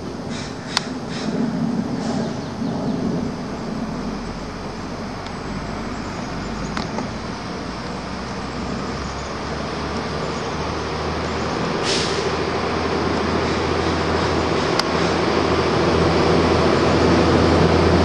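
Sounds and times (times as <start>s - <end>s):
low engine rumble: 0.0s - 18.0s
road traffic hum: 0.0s - 18.0s
short hiss: 11.8s - 12.4s.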